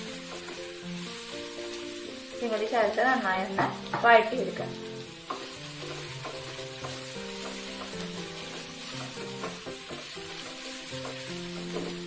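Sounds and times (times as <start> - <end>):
onions sizzling in oil: 0.0 - 12.0
soft background music: 0.0 - 12.0
spatula stirring in a pan: 0.0 - 12.0.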